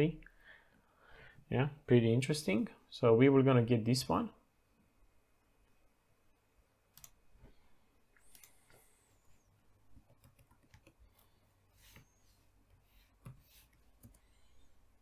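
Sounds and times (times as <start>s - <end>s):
keyboard typing clicks: 6.9s - 7.2s, 8.2s - 8.8s.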